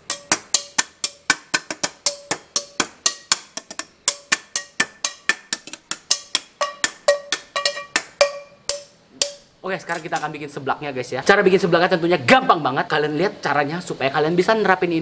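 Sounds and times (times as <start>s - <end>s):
percussion music with woodblock knocks: 0.0s - 10.3s.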